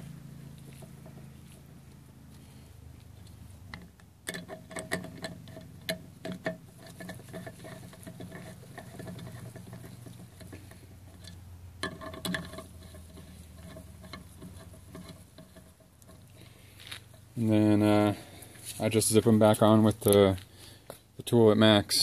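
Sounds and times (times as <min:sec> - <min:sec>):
metal nuts clicking: 0:03.2 - 0:17.3.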